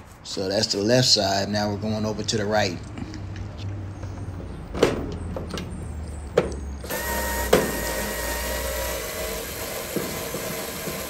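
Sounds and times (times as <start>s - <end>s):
electric screwdriver motor whirring: 6.9s - 11.0s.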